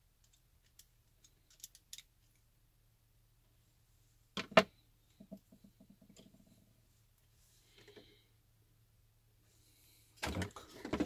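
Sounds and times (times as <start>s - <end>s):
screwdriver clicking on small parts: 0.2s - 2.4s.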